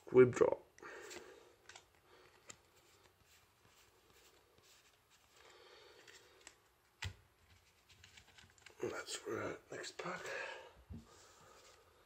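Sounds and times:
trading cards rustling: 1.0s - 9.0s.

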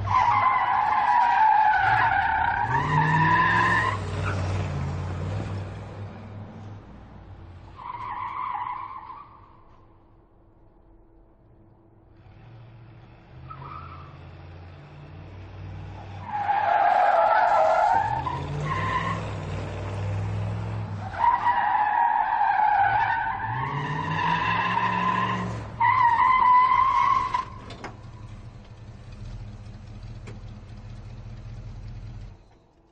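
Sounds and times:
car engine revving: 0.7s - 6.4s, 12.2s - 21.6s, 22.9s - 32.5s
tyres squealing: 16.0s - 28.4s.

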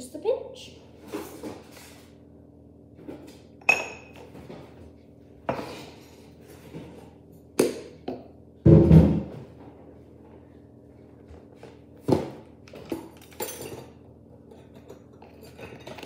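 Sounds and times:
kitchen containers and utensils handled: 3.6s - 4.4s, 12.7s - 16.0s.

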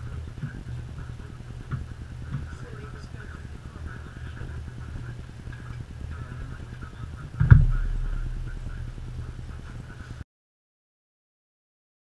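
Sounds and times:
low room hum: 0.0s - 10.2s
heavy thump with low rumble: 7.4s - 9.9s.

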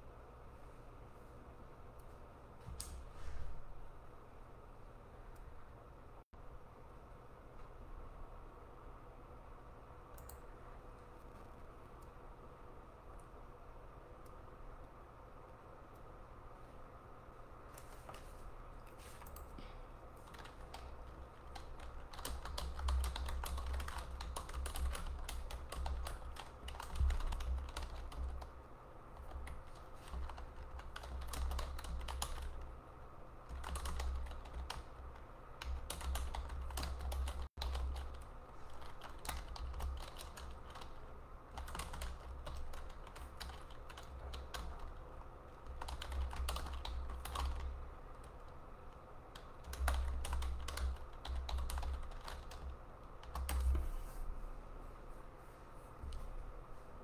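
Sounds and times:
keyboard typing: 10.1s - 12.2s, 17.7s - 19.6s, 20.2s - 32.7s, 33.4s - 53.9s.

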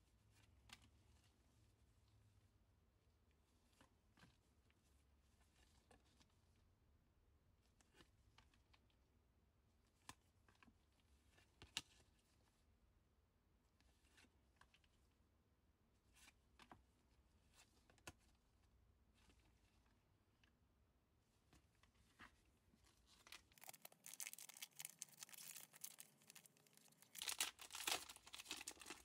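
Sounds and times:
trading cards clicking and rustling: 23.2s - 29.0s.

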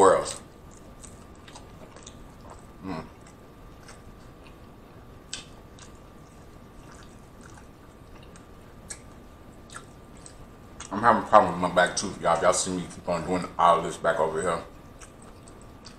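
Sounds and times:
chewing crunchy food: 0.0s - 11.0s, 14.7s - 15.9s.

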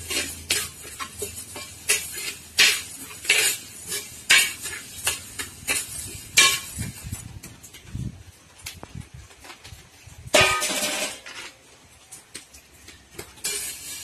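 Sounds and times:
metal ladle scraping a pan: 0.0s - 7.3s, 12.9s - 14.0s
dry grains rustling: 12.9s - 14.0s.

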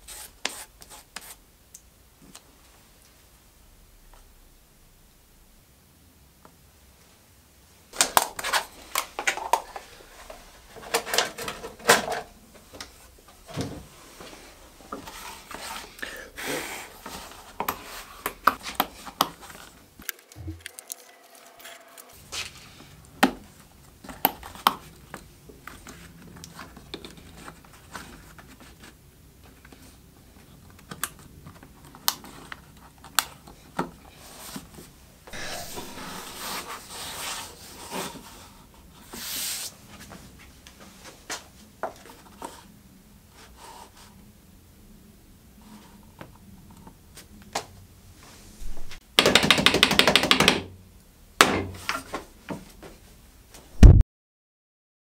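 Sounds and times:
saw blade sliding into leather: 35.3s - 37.4s
taps clicks and knocks: 49.2s - 50.7s.

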